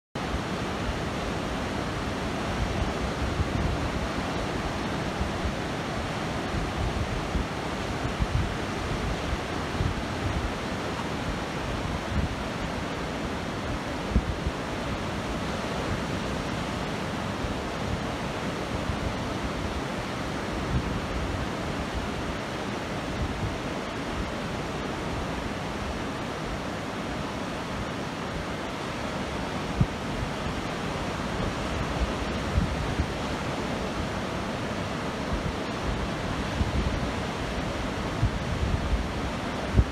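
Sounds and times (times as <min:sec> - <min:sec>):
ocean surf breaking on beach: 0:00.2 - 0:39.9
wind buffeting microphone: 0:00.3 - 0:26.9, 0:27.5 - 0:39.9.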